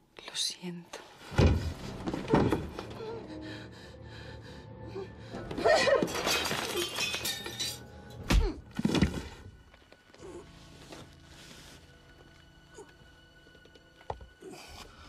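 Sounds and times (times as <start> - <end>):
tense music: 1.5 - 6.2, 7.4 - 15.0
crash with shattering: 5.7 - 7.9.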